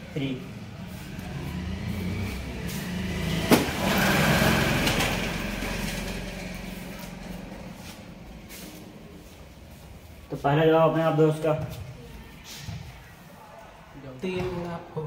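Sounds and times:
engine running: 0.0 - 9.9.

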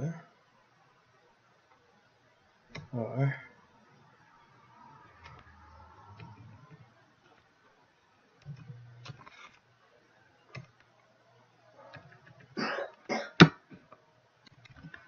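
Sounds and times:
person coughing: 12.6 - 13.5.

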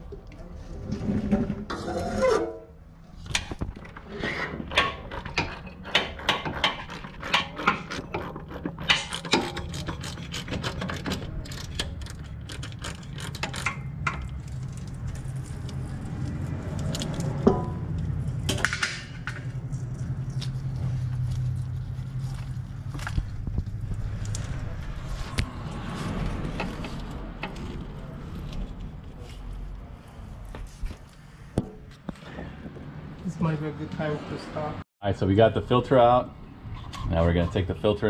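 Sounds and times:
ratchet wrench clicking: 4.7 - 14.3.

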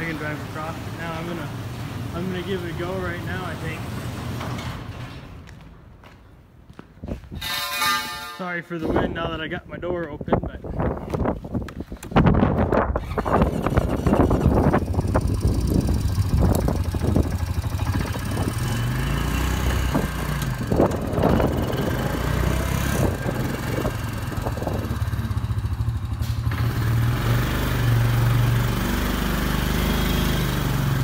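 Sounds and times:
atv engine running: 13.0 - 31.0.

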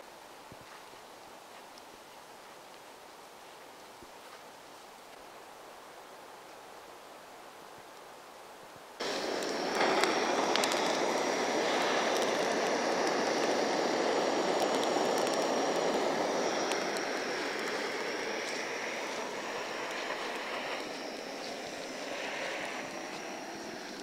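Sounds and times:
gas blowtorch hissing: 9.0 - 24.0.

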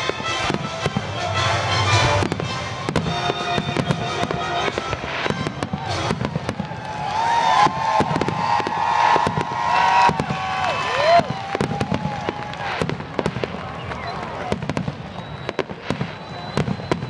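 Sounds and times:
music playing: 0.0 - 6.5
fireworks bangs and crackling: 0.0 - 17.0.

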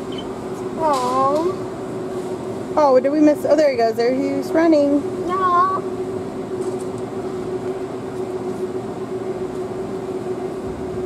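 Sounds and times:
constant low hum: 0.0 - 11.0.

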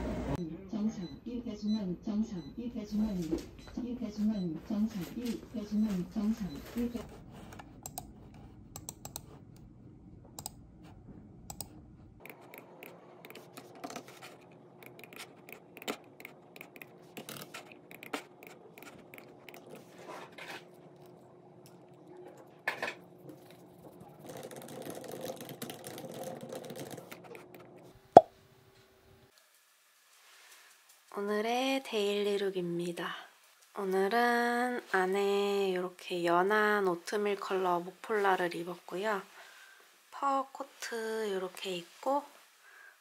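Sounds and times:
keyboard typing: 6.8 - 9.3, 10.4 - 10.6, 11.5 - 11.7, 12.3 - 19.8
mouse clicks: 7.8 - 8.1, 10.4 - 10.6, 11.5 - 11.7.

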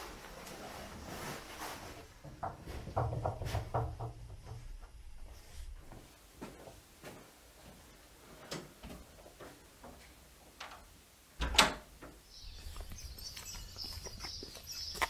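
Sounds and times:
soft knocks: 2.3 - 5.0
footsteps on tiles: 5.2 - 7.9, 12.4 - 15.0
door being handled: 11.4 - 12.0.

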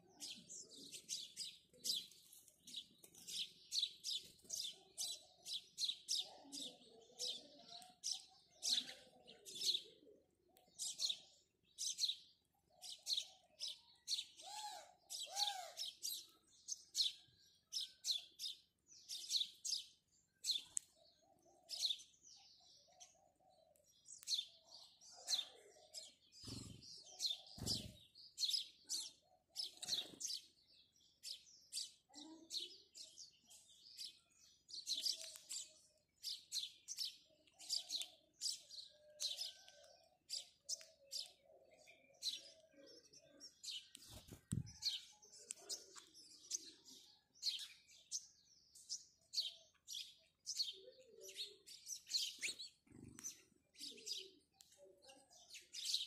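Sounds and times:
sparrows chirping: 0.0 - 56.0.

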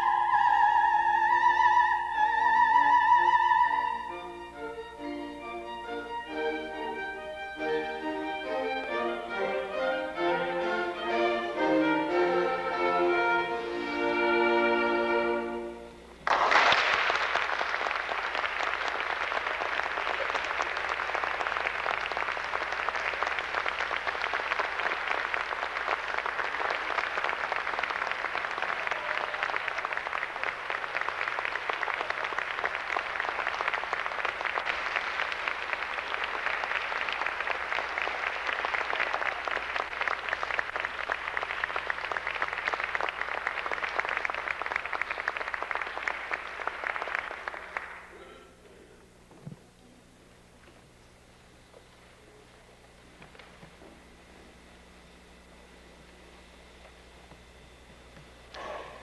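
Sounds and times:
soprano singing with strings: 0.0 - 15.9
audience applause: 16.2 - 48.4.

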